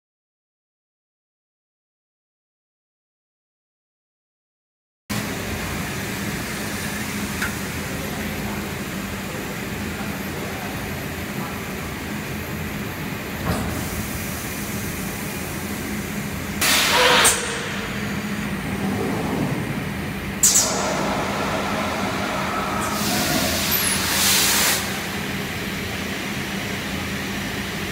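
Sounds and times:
machine humming: 14.0s - 27.9s
loud hiss of air: 16.6s - 17.5s, 20.4s - 26.1s.

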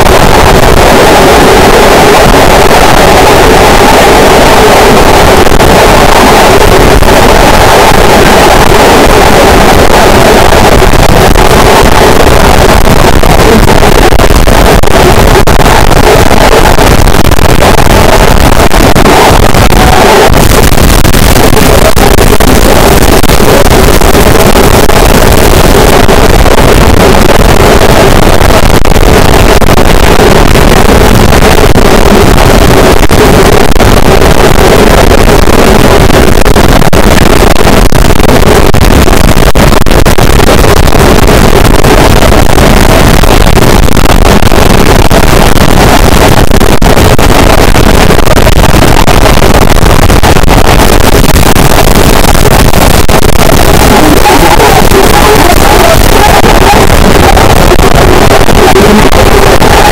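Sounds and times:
distorted static noise wall: 0.0s - 59.9s.

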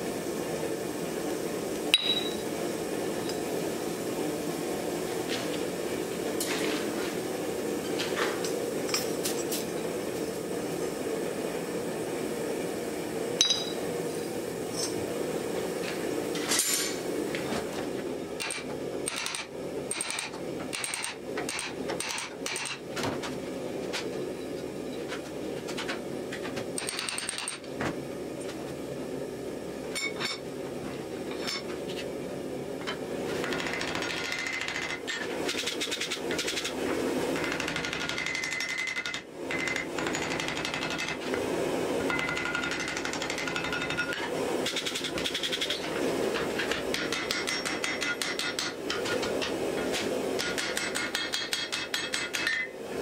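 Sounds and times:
hammer striking steel on anvil: 1.9s - 2.4s, 13.4s - 13.8s, 46.9s - 49.2s, 50.4s - 52.7s.

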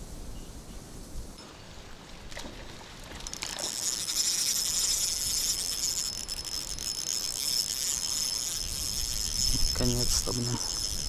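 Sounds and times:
spinning reel whirring: 3.2s - 11.0s.

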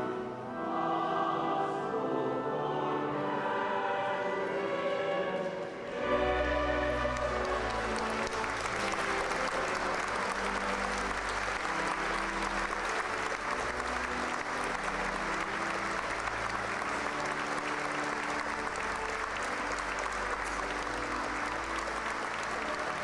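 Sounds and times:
congregation applauding: 5.6s - 23.0s.

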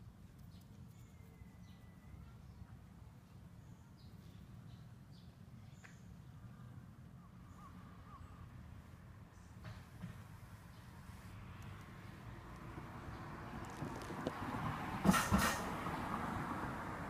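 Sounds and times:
faint bird chirps: 0.5s - 4.9s.

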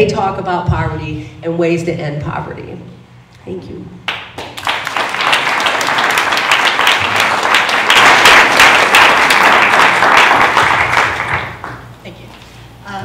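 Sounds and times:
audience applauding: 4.1s - 11.9s.

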